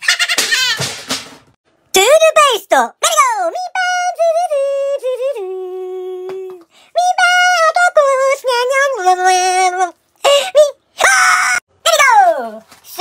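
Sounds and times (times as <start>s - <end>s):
high-pitched voice singing: 3.0s - 13.0s.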